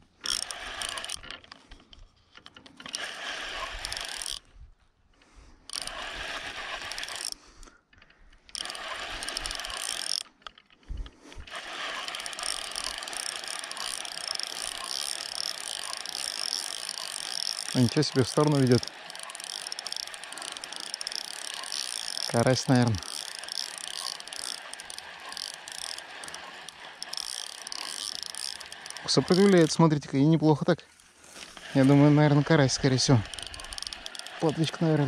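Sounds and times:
fishing reel whirring: 0.0 - 1.7, 2.4 - 4.5, 5.7 - 7.5, 8.4 - 10.6, 11.2 - 30.3, 31.4 - 35.0.

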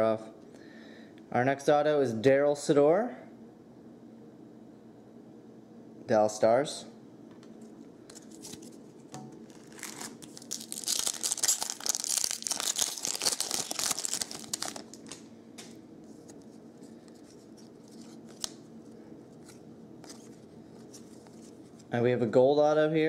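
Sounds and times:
cards rustling and clicking: 8.1 - 8.8, 9.4 - 18.7, 19.3 - 21.9
foil wrapper tearing and crinkling: 9.4 - 15.3.

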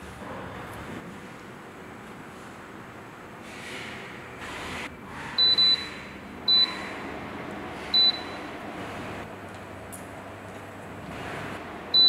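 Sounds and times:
air cooler fan running: 0.0 - 12.0
control panel beeps: 5.4 - 5.9, 6.5 - 6.8.

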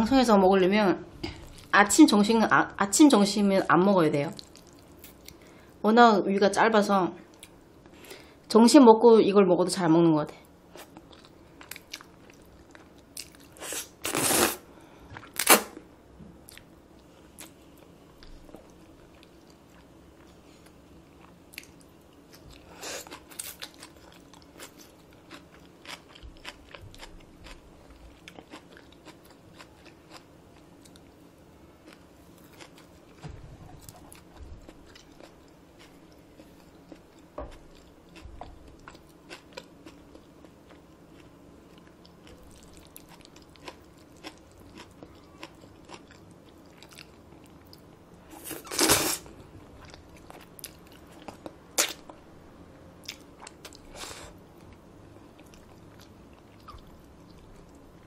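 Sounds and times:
noodle slurps: 13.6 - 14.6.

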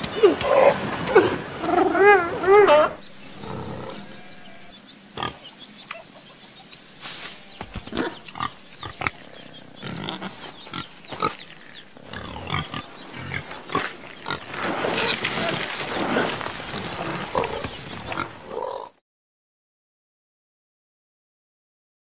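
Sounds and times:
cartoon pigs grunting: 7.8 - 19.0.

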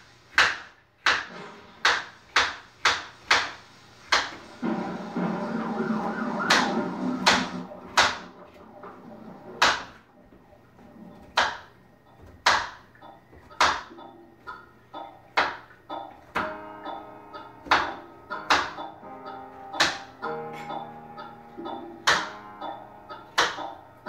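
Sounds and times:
knife chopping on cutting board: 0.4 - 4.4.

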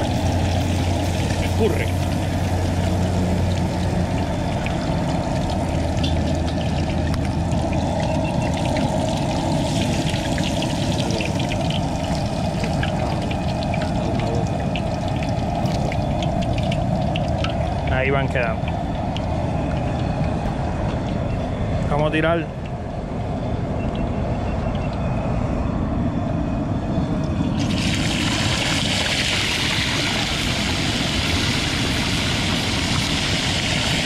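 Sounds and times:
fish sizzling in hot oil: 0.0 - 20.1, 27.6 - 34.0.

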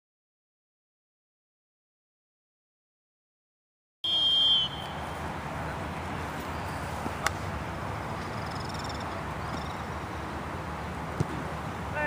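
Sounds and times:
referee's whistle blast: 4.0 - 5.0
open-air field noise: 4.0 - 12.0.

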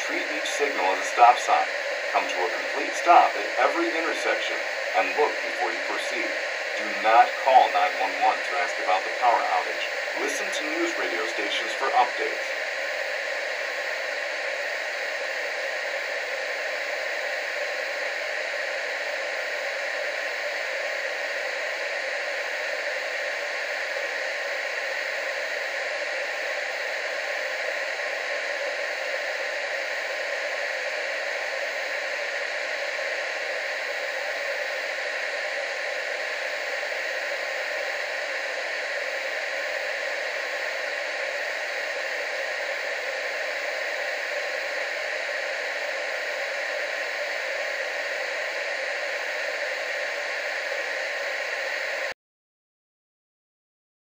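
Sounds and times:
steady static hiss: 0.0 - 14.5.

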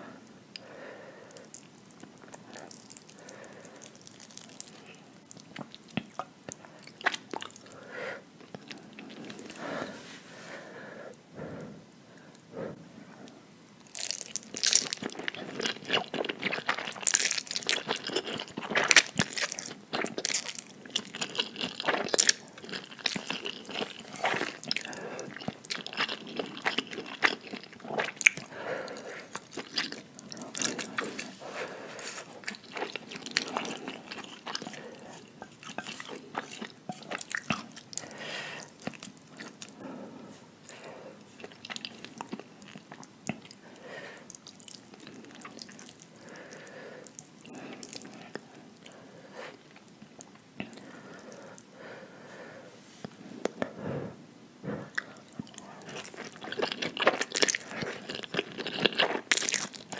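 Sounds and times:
chewing with wet mouth smacks: 1.4 - 7.8, 13.8 - 39.8, 40.7 - 48.9, 54.9 - 59.9.

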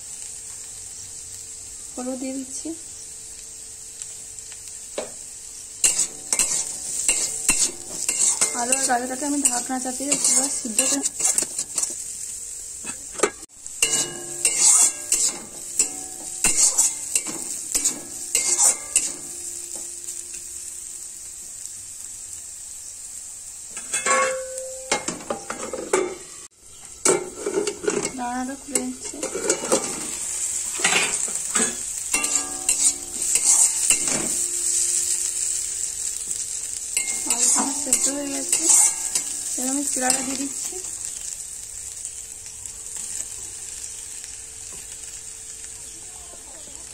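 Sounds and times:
vegetables sizzling: 0.0 - 46.9
metal spatula scraping and stirring: 5.8 - 12.0, 12.8 - 19.4, 27.1 - 35.2, 37.0 - 40.6
plate clattering onto pan: 23.8 - 26.2.

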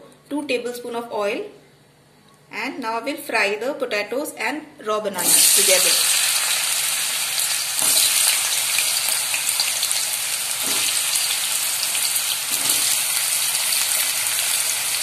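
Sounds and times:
food sizzling in hot oil: 5.2 - 15.0.

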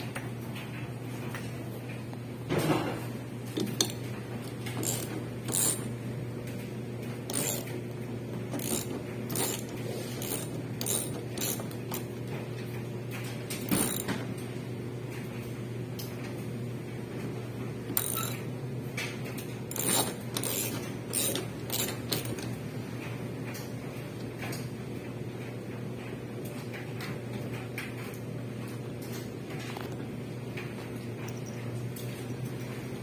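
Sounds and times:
steady low hum: 0.0 - 26.5
mechanical clicks and knocks: 2.5 - 14.4, 17.9 - 18.4, 19.0 - 23.6.

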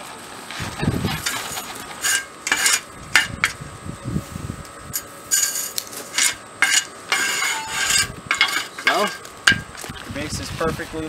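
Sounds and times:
gravel scraped by hand: 5.2 - 11.0.

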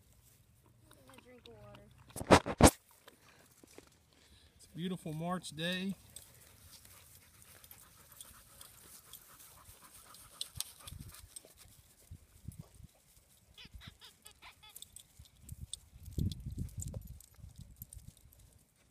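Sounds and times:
dog panting: 6.2 - 11.6.

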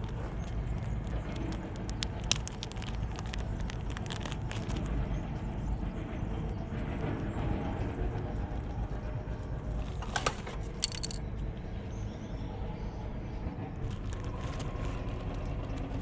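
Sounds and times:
plastic bag crinkling: 0.0 - 4.9, 9.8 - 11.2, 13.9 - 15.0
low outdoor rumble: 0.0 - 16.0
plastic caps clicking: 10.0 - 11.2.

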